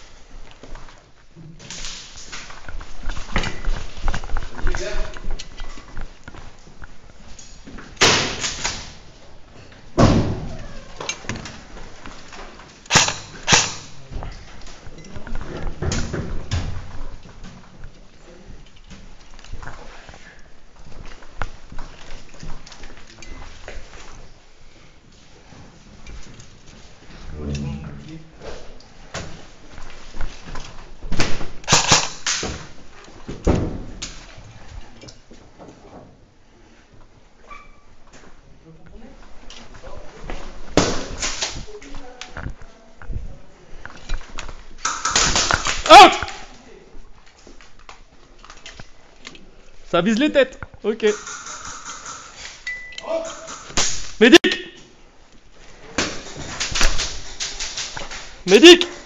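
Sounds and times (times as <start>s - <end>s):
sharp bangs echoing: 8.0s - 9.0s, 12.9s - 14.1s
sharp knocks and thuds: 10.0s - 10.6s.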